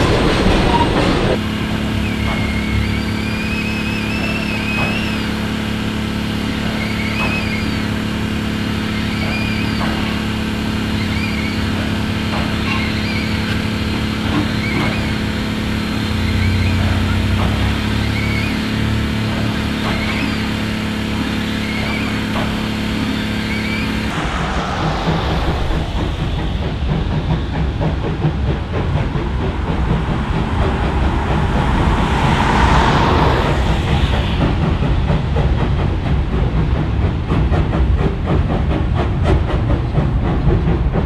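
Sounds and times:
steam locomotive hissing: 0.0s - 41.0s
high wavering squeal: 1.8s - 27.8s
low rumble: 23.6s - 37.0s.

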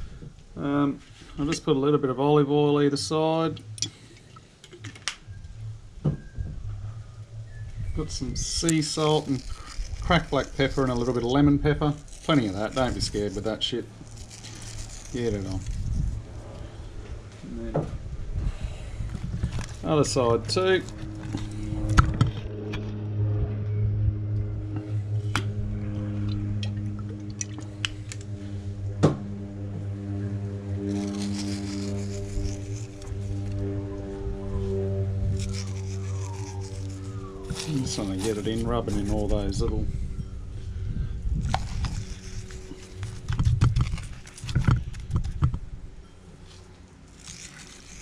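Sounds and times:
steady low hum: 0.0s - 48.0s
hands rubbing fish: 30.8s - 34.0s, 35.3s - 39.4s.

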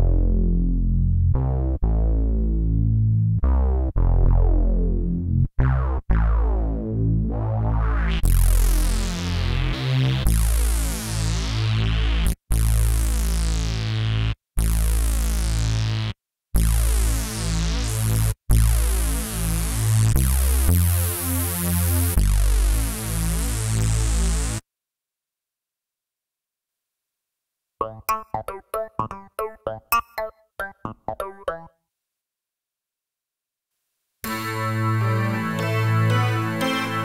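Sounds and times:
synth bass line: 0.0s - 13.5s, 34.2s - 37.0s.

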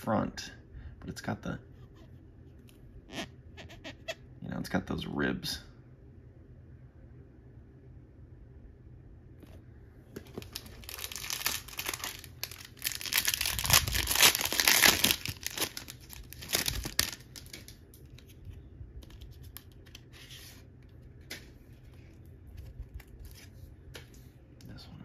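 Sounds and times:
cards rustling: 10.1s - 24.3s
wrapper tearing and crinkling: 10.3s - 18.3s.

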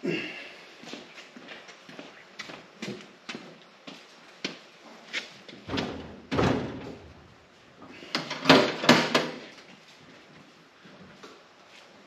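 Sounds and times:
loud metal clunks: 5.7s - 7.3s.

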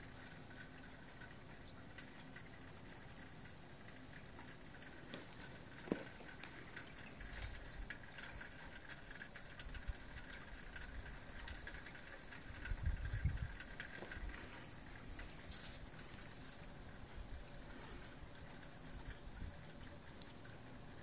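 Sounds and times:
light ticks: 0.0s - 20.7s
low rumbles on microphone: 12.6s - 14.4s.

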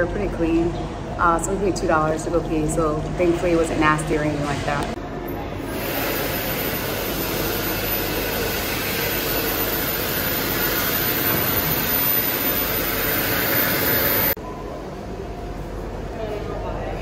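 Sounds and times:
hand dryer air rush: 5.7s - 14.4s
high-pitched motor whine: 5.7s - 14.4s.

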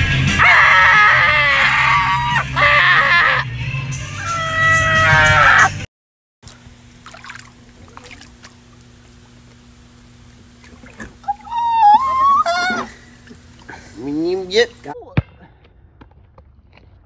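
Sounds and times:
person yelling: 0.4s - 3.4s, 4.2s - 5.8s, 11.2s - 13.0s
person screaming: 0.4s - 3.5s, 4.2s - 5.8s, 11.2s - 13.0s
water trickling and splashing: 6.4s - 14.9s
steady low hum: 6.4s - 15.0s.

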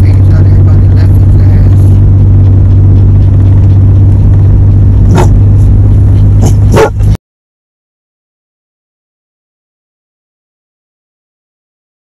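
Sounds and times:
road noise inside car: 0.0s - 7.2s.

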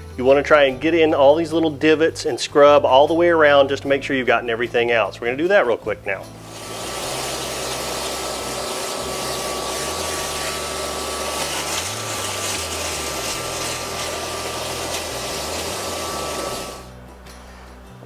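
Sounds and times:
hose sucking gritty water: 6.4s - 16.9s
shop vac running: 6.4s - 17.0s.

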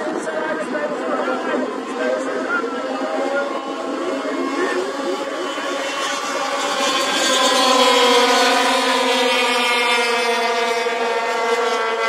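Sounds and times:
snowmobile engines racing: 0.0s - 12.0s.

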